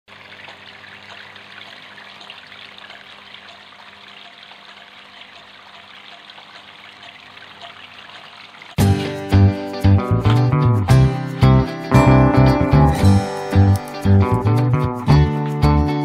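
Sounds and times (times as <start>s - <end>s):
fountain water trickling and splashing: 0.1s - 8.8s.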